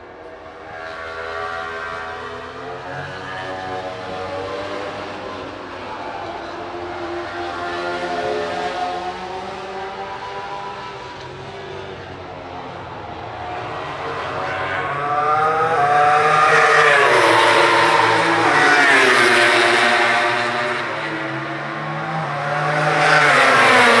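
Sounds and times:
racing motorcycle passing: 0:12.6 - 0:24.0.

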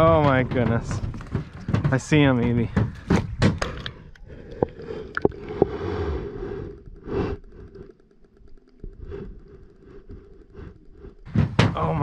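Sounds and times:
underwater clicks and knocks: 0:00.0 - 0:05.8
faint ticking: 0:00.0 - 0:12.0.

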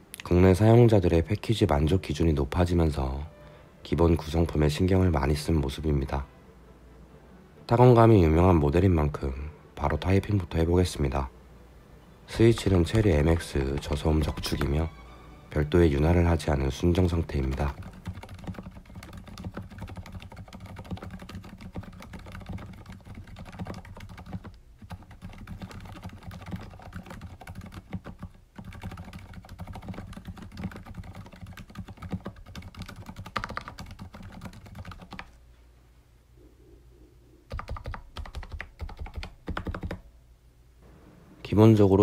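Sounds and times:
typing on mechanical keyboard: 0:17.0 - 0:35.3, 0:37.5 - 0:40.0.

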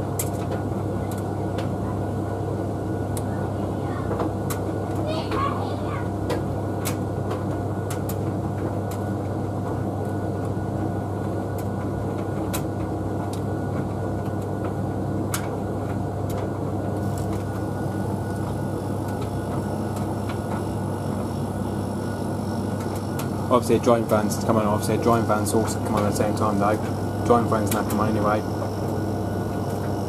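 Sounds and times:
tumble dryers humming: 0:00.0 - 0:30.0
faint high whine: 0:17.0 - 0:30.0.

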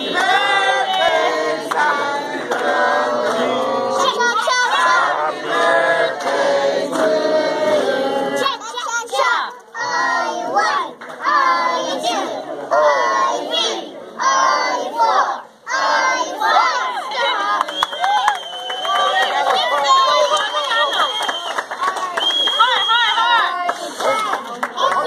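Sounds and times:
group singing birthday song: 0:00.0 - 0:17.8.

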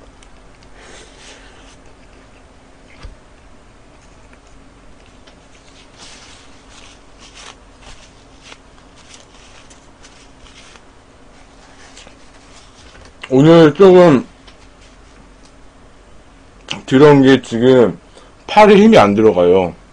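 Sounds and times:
paper napkin crinkling: 0:03.9 - 0:13.2.

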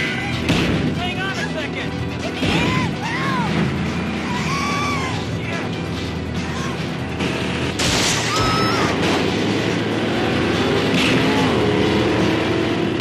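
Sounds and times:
car engines running hard: 0:00.0 - 0:13.0.

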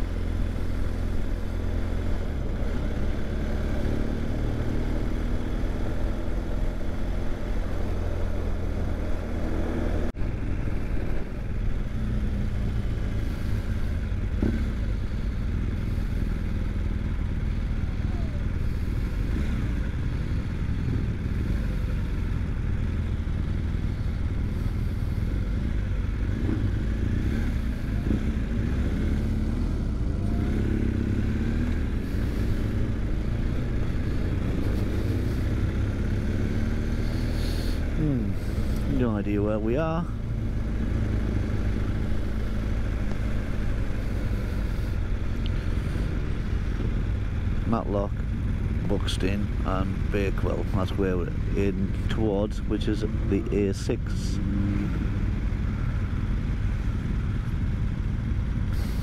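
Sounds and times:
motorcycle engine running: 0:00.0 - 0:59.0
wind and road rumble: 0:00.0 - 0:59.0.

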